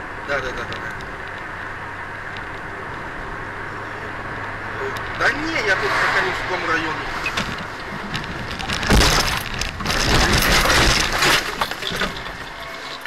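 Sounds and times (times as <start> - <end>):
car collision impact: 7.3 - 13.0
crunching and breaking: 7.4 - 13.0.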